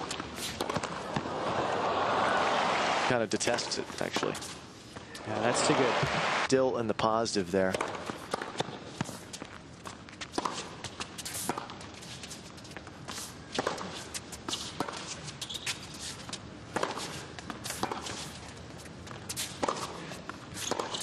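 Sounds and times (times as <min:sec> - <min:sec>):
racket hitting tennis ball: 0:00.0 - 0:01.3, 0:07.7 - 0:09.4, 0:10.2 - 0:11.8, 0:13.0 - 0:15.7, 0:16.7 - 0:18.4, 0:19.0 - 0:21.0.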